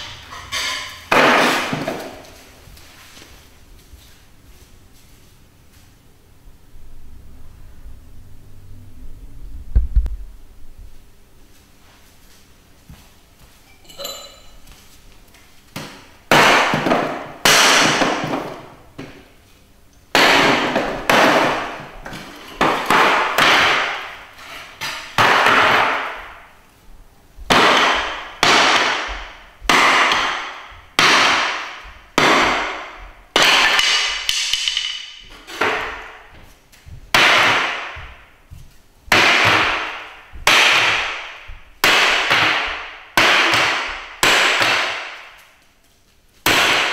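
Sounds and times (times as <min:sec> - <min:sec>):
hatchet chopping wooden chair: 0:00.0 - 0:02.2, 0:15.8 - 0:19.2, 0:20.1 - 0:26.4, 0:27.5 - 0:36.4, 0:37.1 - 0:38.3, 0:39.1 - 0:45.5, 0:46.4 - 0:46.9.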